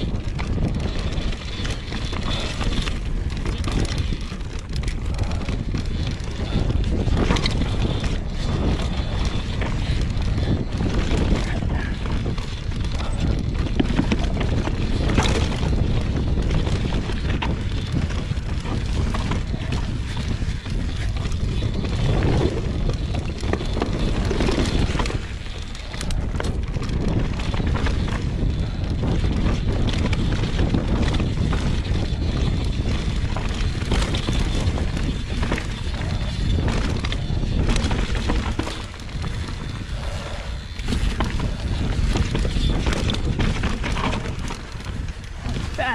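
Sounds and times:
bike rattling clicks: 0:00.0 - 0:45.9
tyre noise: 0:00.0 - 0:45.9
wind rush on microphone: 0:00.0 - 0:45.9
tyres rolling over wooden planks: 0:29.5 - 0:45.9.

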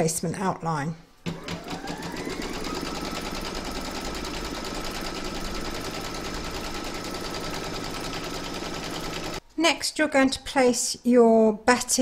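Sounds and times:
embroidery machine needle clatter: 0:01.3 - 0:09.4
machine motor hum: 0:01.3 - 0:09.4.

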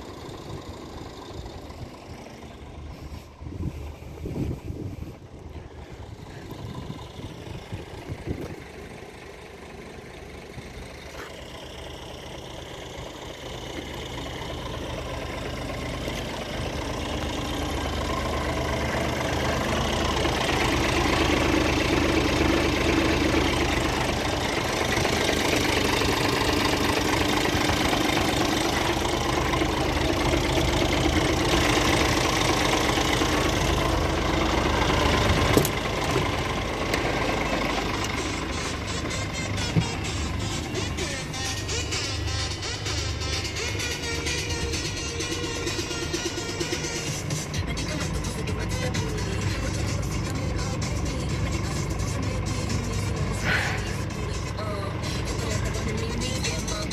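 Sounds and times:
truck diesel engine idling: 0:00.0 - 0:56.9.

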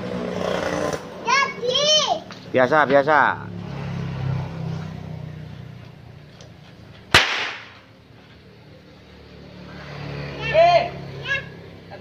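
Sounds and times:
whip crack: 0:07.1 - 0:07.9.

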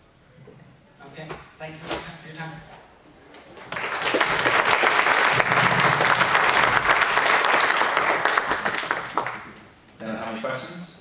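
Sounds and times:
audience applauding: 0:03.5 - 0:09.6.

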